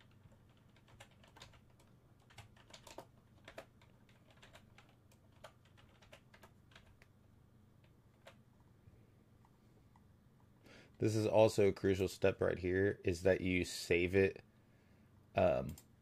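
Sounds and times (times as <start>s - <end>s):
typing on computer keyboard: 0.0s - 7.1s
low steady hum: 0.0s - 16.0s.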